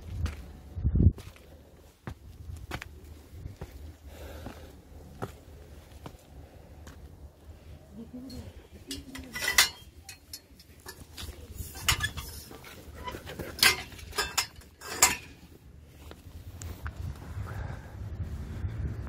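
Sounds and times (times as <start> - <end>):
sharp clacks and clinks: 8.9 - 15.5.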